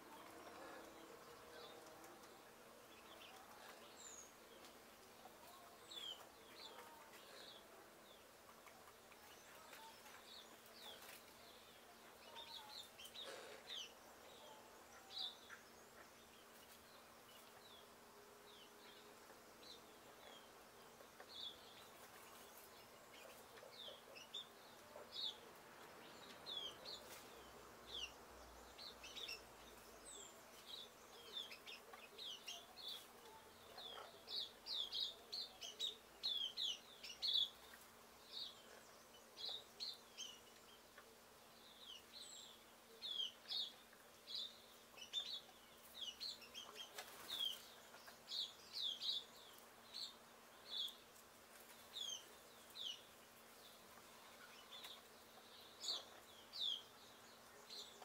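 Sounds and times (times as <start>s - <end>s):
small birds chirping: 0.0s - 58.0s.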